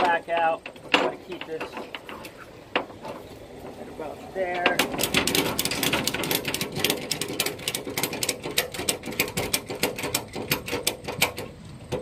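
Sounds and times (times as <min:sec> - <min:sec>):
ratchet strap clicking: 0:04.8 - 0:12.0.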